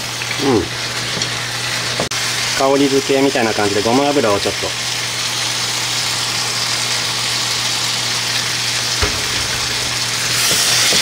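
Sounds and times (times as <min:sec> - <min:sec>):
food sizzling in a frying pan: 0:00.0 - 0:11.0
knock: 0:09.0 - 0:09.8.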